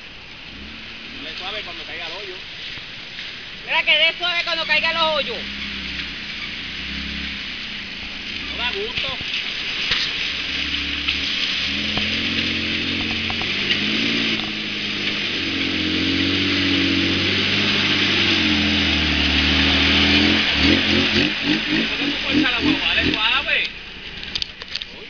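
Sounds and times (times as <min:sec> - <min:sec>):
car engine at low revs: 0:00.0 - 0:25.0
steady high hiss: 0:00.0 - 0:25.0.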